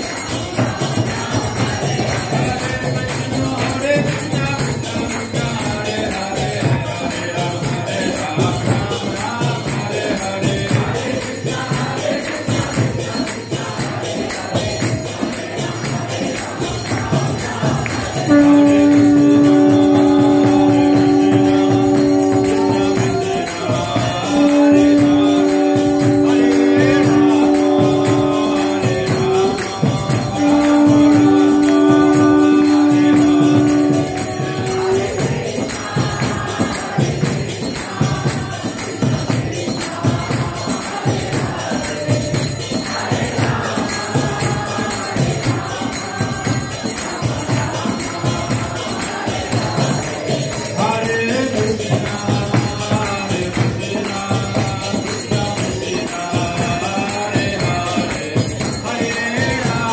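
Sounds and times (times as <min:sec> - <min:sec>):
group chanting: 0:00.0 - 0:59.9
jingling hand cymbals: 0:00.0 - 0:59.9
held two-note chord: 0:18.3 - 0:23.6, 0:24.2 - 0:35.2.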